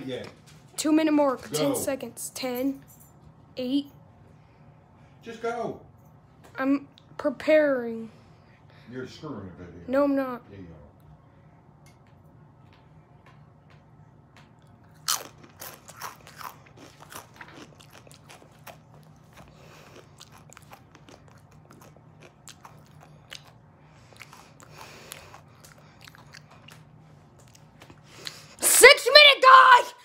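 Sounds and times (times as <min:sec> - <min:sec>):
chewing: 0:14.6 - 0:28.6
crunching tortilla chip: 0:15.0 - 0:19.2.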